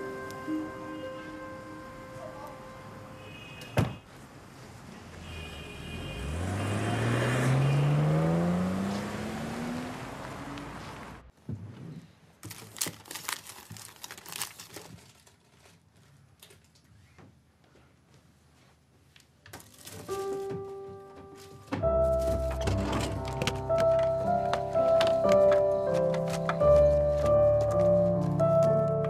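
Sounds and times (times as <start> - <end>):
car engine accelerating away: 6.0 - 11.3.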